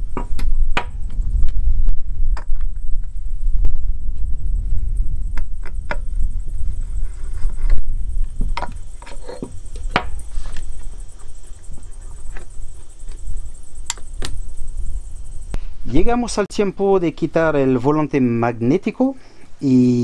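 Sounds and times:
wind rumble on microphone: 0.0 - 16.4.

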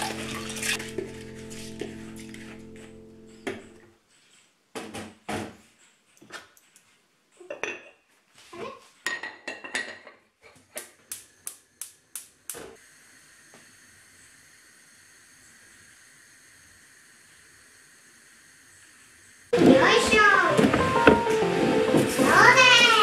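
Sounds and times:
gas burner hissing: 11.0 - 23.0.

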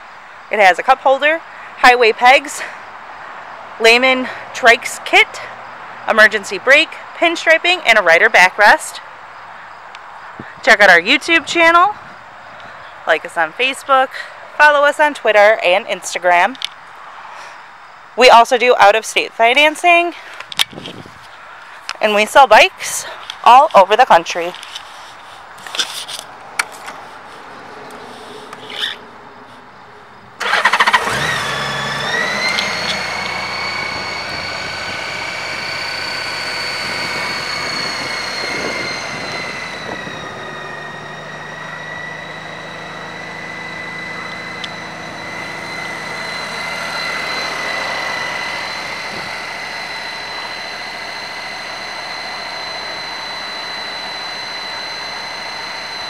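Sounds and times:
high whine: 25.7 - 56.0
motorcycle engine starting and idling: 30.2 - 56.0.

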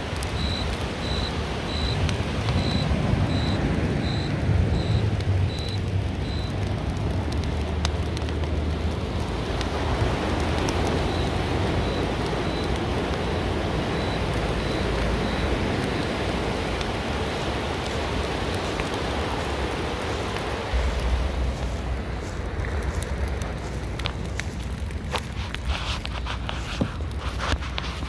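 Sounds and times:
low rumble: 20.3 - 25.0.

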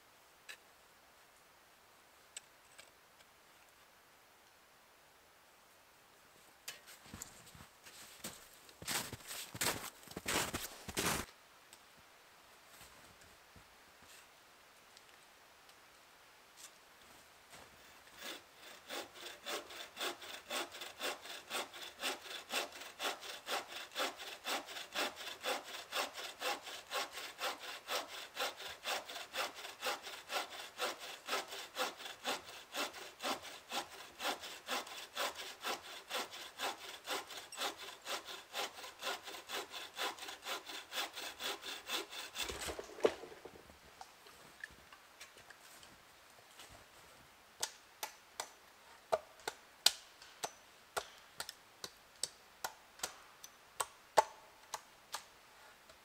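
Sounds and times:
bow saw cutting wood: 18.1 - 43.5.

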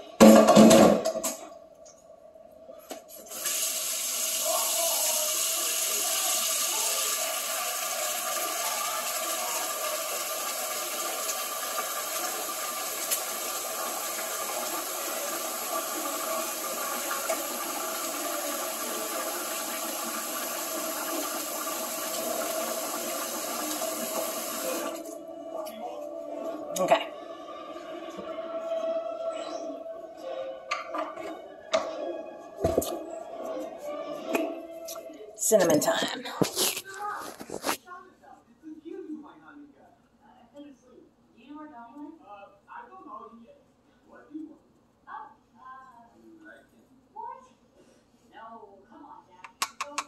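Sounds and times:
water running: 3.2 - 25.4.

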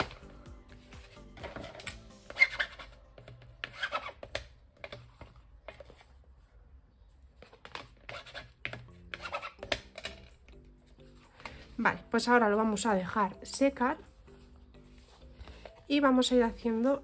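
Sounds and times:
paper and card rustling: 0.0 - 6.4.

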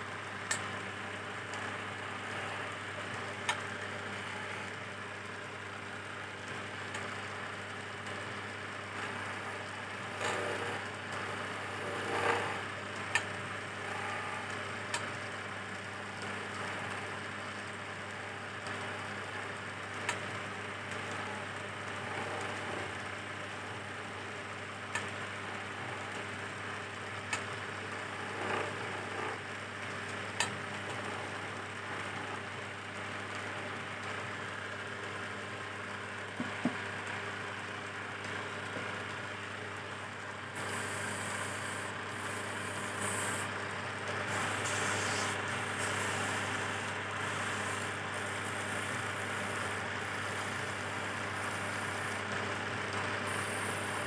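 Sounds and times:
wood lathe humming: 1.7 - 3.2, 8.1 - 14.6, 20.5 - 23.0, 27.3 - 29.6, 30.7 - 32.6, 40.4 - 54.0
chisel scraping spinning wood: 8.9 - 13.2, 20.8 - 23.0, 28.0 - 29.4, 30.8 - 32.4, 40.6 - 43.5, 44.2 - 54.0.

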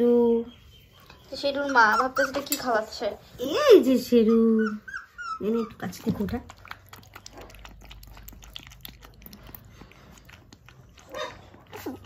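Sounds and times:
puppy lapping from bowl: 5.7 - 12.0.

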